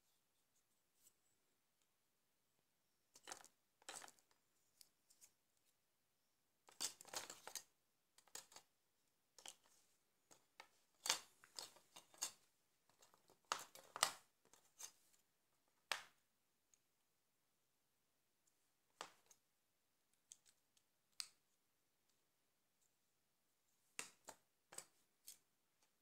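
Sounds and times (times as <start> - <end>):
plastic parts clicking and scraping: 3.1 - 5.3, 6.7 - 8.7, 9.4 - 15.0.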